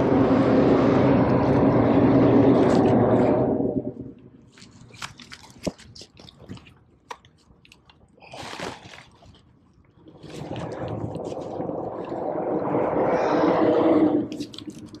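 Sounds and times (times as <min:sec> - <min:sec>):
water draining rush: 0:10.2 - 0:15.0.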